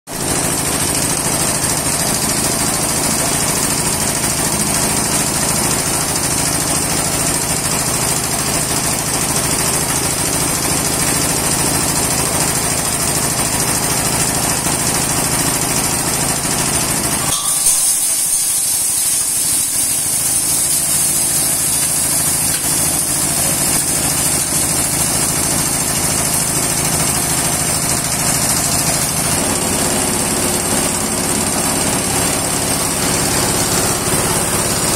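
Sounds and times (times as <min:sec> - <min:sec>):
hammer mill crushing glass: 0:17.1 - 0:29.3
diesel engine running: 0:19.5 - 0:34.9.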